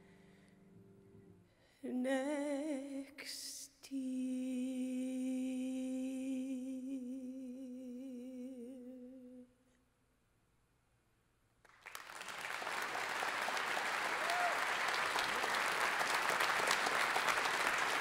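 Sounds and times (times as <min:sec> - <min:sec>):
audience applause: 0:11.7 - 0:18.0.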